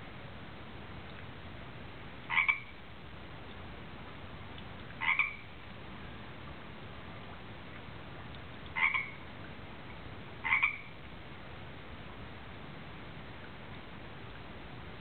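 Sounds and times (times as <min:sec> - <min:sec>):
tree frog croaking: 0:02.3 - 0:02.8, 0:05.0 - 0:05.6, 0:08.7 - 0:09.3, 0:10.4 - 0:11.0.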